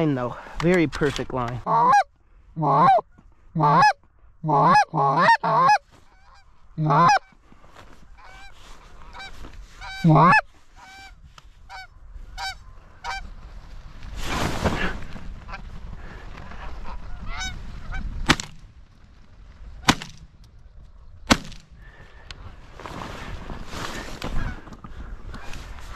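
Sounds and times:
goose call honks and clucks: 1.6s - 7.4s, 8.2s - 13.2s, 16.8s - 18.1s
flock of geese honking: 1.6s - 13.3s, 16.6s - 18.1s.

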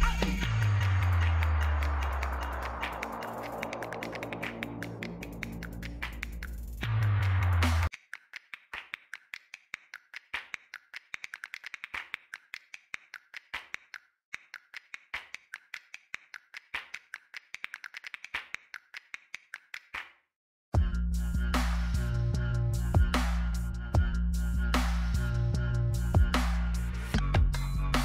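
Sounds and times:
music: 0.0s - 7.9s, 20.8s - 28.0s.

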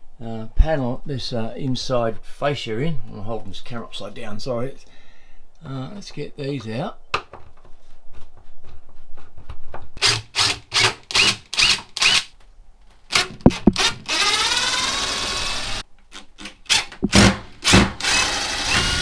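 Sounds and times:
cordless drill motor: 10.0s - 12.3s, 13.1s - 15.8s, 17.6s - 19.0s.

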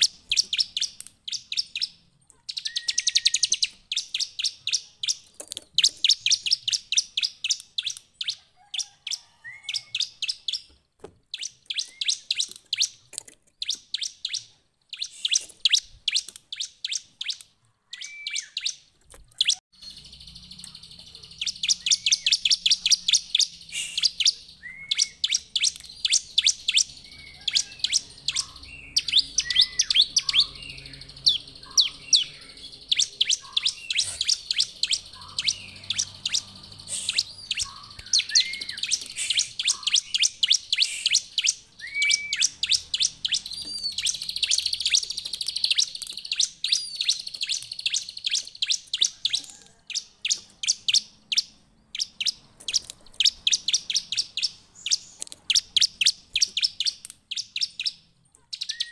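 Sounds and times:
bird singing high chirps: 0.0s - 58.9s.

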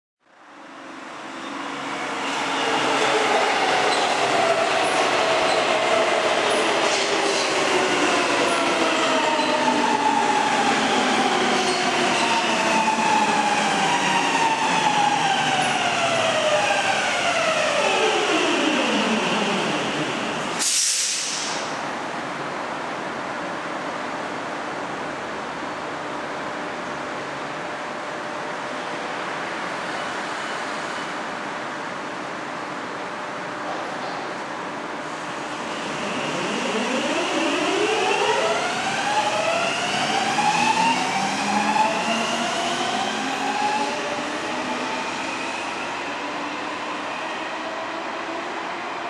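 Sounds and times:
metro train braking with whine: 0.6s - 33.0s, 33.8s - 49.0s
air hiss: 20.6s - 21.7s.

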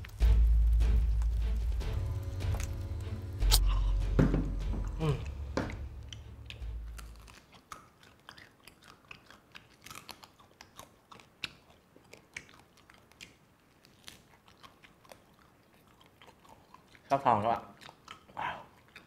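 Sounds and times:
chewing and gnawing: 0.0s - 3.9s, 5.2s - 19.0s
crunches of bitten skin: 5.7s - 19.0s.

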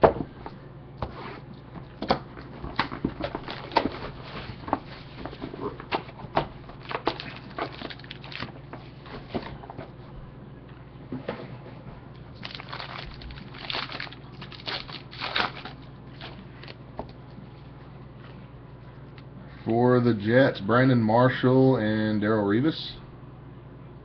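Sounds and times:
cardboard and foil rustling: 2.4s - 9.9s, 12.4s - 16.8s.

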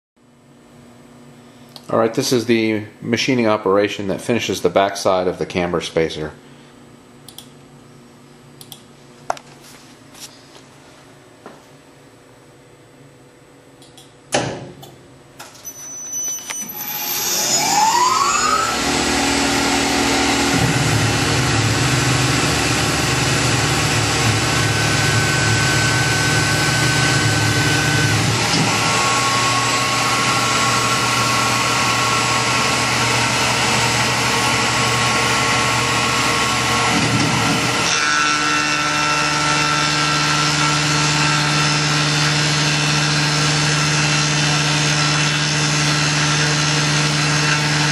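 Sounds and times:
sharp click: 7.3s - 7.5s, 8.6s - 8.9s, 13.8s - 15.5s
mill spindle whine: 15.4s - 47.9s.

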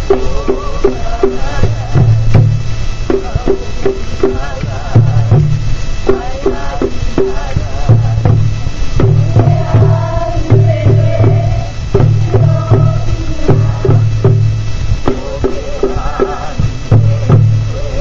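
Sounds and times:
person chanting: 0.0s - 2.5s, 3.2s - 8.5s, 15.1s - 18.0s
hand drums playing: 0.0s - 18.0s.

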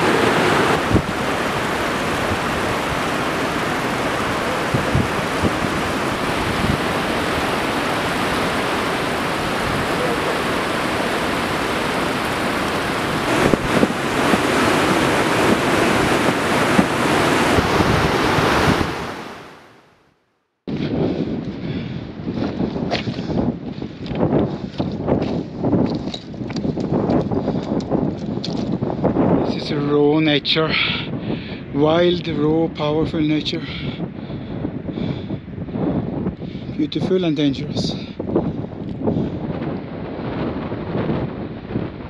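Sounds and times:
wind buffeting microphone: 0.0s - 19.4s, 20.7s - 42.0s
meltwater rushing over ice: 0.0s - 19.6s.

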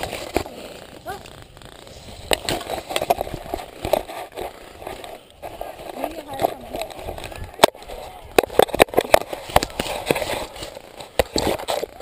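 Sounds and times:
branches scraping and snapping: 0.0s - 12.0s.

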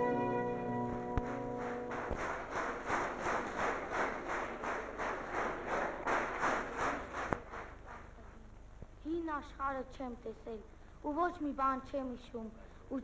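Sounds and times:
crowd clapping in unison: 0.9s - 8.2s.

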